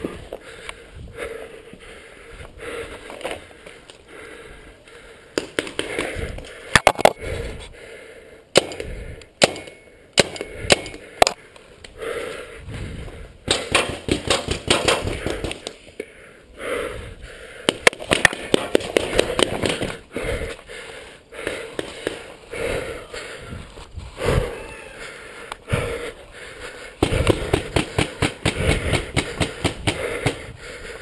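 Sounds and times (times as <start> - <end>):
paintball markers firing: 5.3 - 6.2, 13.5 - 15.8, 17.6 - 20.0, 21.4 - 22.3, 27.0 - 30.5.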